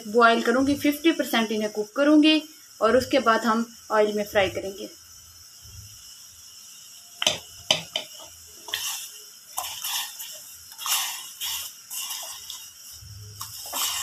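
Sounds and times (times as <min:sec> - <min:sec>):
knocks against a pot: 0:07.2 - 0:08.1.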